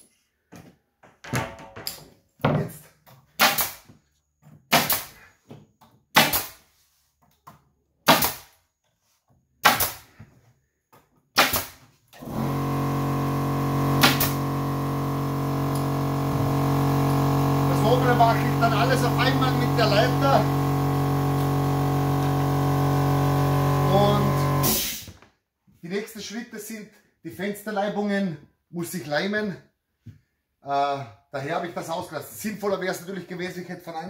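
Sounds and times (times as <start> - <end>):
pneumatic nail gun firing: 3.4 - 3.9, 4.7 - 5.2, 6.1 - 6.6, 8.0 - 8.6, 9.6 - 10.1, 11.3 - 18.2, 18.9 - 25.2
air compressor humming: 12.2 - 25.2.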